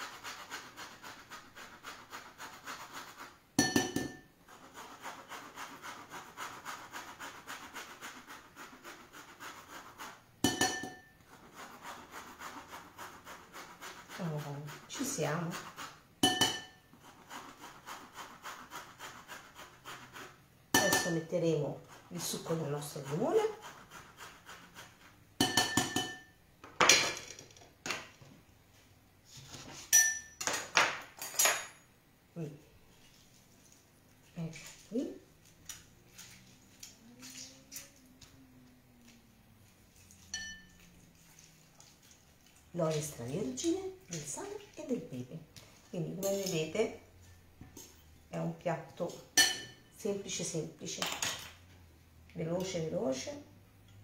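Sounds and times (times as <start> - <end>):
zest grating on hand grater: 0.0 - 3.4, 4.5 - 10.2, 11.3 - 16.0, 17.0 - 20.4, 21.8 - 25.2
metal utensils clinking on ceramic bowl: 10.4 - 11.0, 16.2 - 16.8, 29.9 - 31.9, 40.1 - 41.0, 46.1 - 46.8, 49.4 - 49.8
sharp ringing clink: 30.0 - 30.4.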